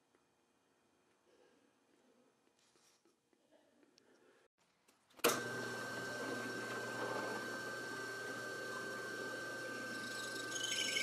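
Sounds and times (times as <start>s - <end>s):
drill press running: 5.2s - 11.0s.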